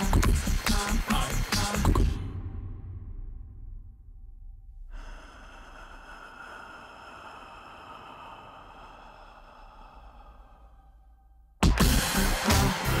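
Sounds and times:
low rumble: 0:02.0 - 0:11.6.

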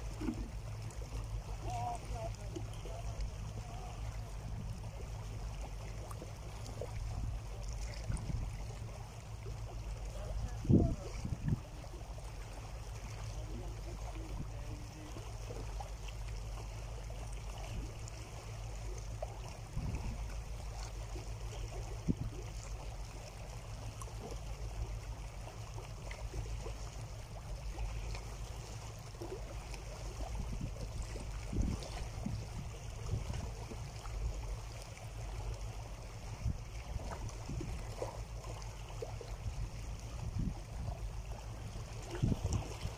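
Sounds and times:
small water splashes: 0:00.0 - 0:42.9
small waves lapping over rocks: 0:00.0 - 0:42.9
steady low rumble: 0:00.0 - 0:42.9.

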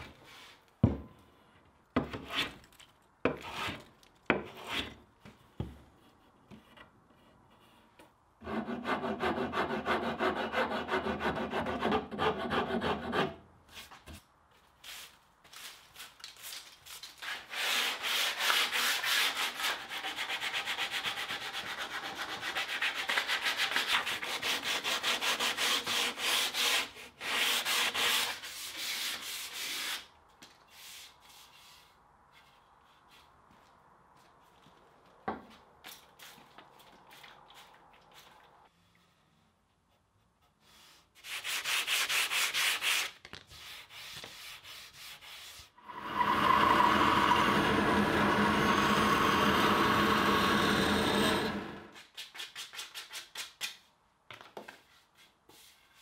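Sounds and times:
sandpaper rubbing on wood: 0:40.7 - 0:45.7.

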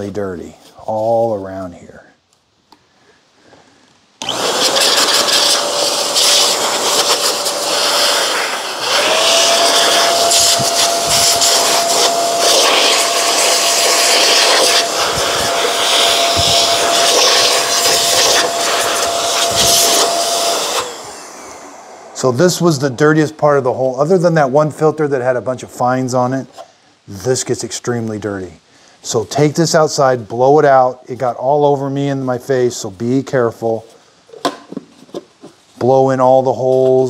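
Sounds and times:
electric air blower running: 0:04.2 - 0:23.0.

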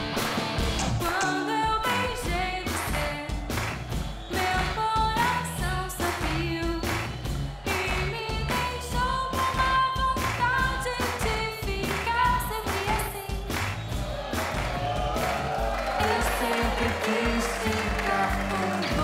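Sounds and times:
bass guitar: 0:00.0 - 0:19.0
drums keeping a steady beat: 0:00.0 - 0:19.0
woman singing a pop ballad: 0:01.0 - 0:03.4, 0:04.3 - 0:07.0, 0:07.7 - 0:13.5, 0:16.0 - 0:19.0.

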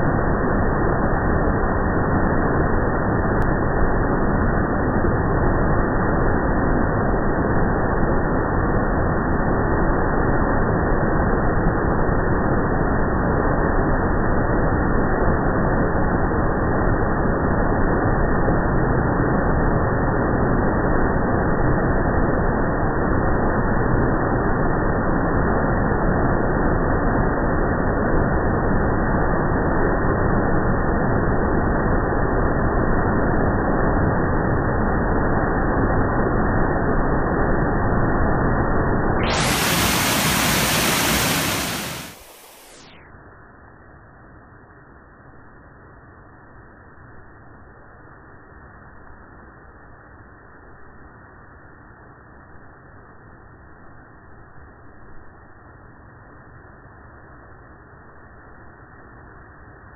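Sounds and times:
waterfall rushing: 0:39.3 - 0:42.8.

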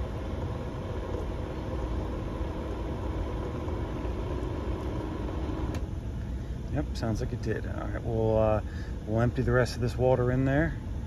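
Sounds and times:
pump motor humming: 0:00.0 - 0:06.0.

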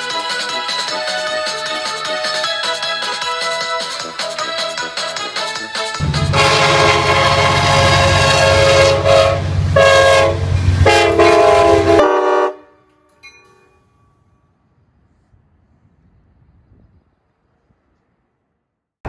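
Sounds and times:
train rumbling: 0:00.0 - 0:18.6
locomotive air horn blasts: 0:06.0 - 0:12.9.

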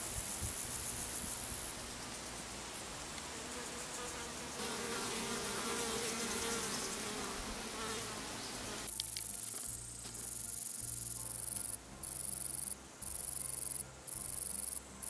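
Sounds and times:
high insect trill: 0:00.0 - 0:04.6, 0:08.9 - 0:15.0
flying insect buzzing: 0:03.3 - 0:14.8.

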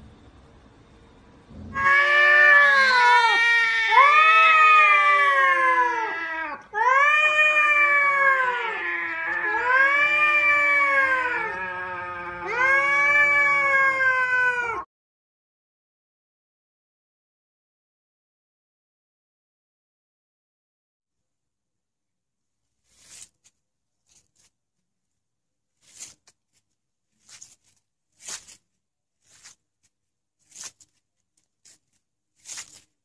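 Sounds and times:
cats yowling: 0:01.6 - 0:14.9.

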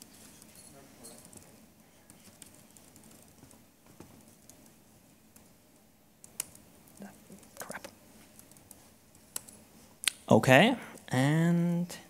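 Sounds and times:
keyboard typing clicks: 0:02.1 - 0:03.6, 0:06.2 - 0:07.1, 0:08.4 - 0:09.6.

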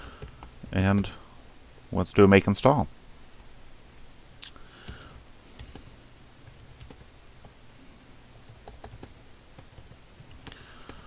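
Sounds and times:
computer keyboard keys clicking: 0:00.0 - 0:01.1, 0:06.5 - 0:07.6, 0:08.4 - 0:11.0
low steady hum: 0:00.0 - 0:11.0.

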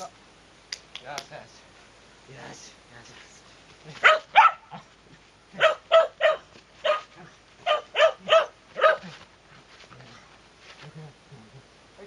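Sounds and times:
dog barking: 0:04.0 - 0:04.8, 0:05.6 - 0:09.2.

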